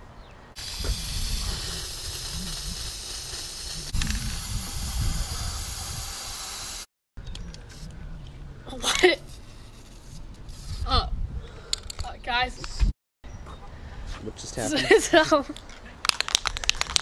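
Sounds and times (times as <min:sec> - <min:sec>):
spray can hissing: 0:00.6 - 0:06.9, 0:09.2 - 0:10.8.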